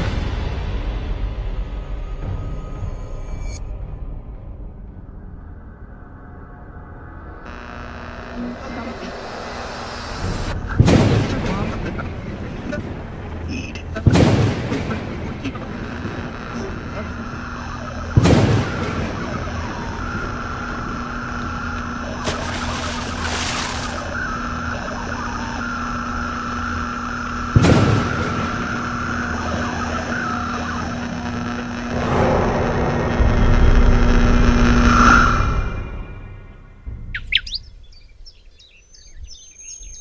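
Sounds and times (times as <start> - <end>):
low droning hum: 3.4 - 38.2
rumbling swell: 5.0 - 37.1
sudden booms: 10.1 - 36.1.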